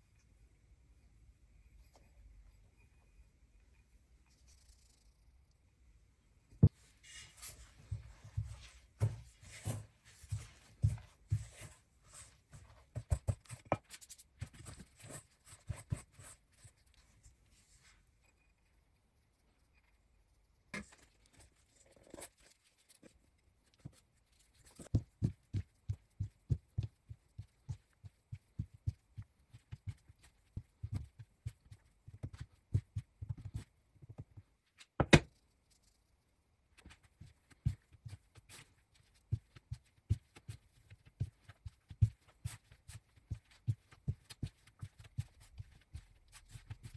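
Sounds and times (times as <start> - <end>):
soft taps and thuds of dough: 7.8 - 16.3, 24.6 - 35.3, 36.8 - 46.9.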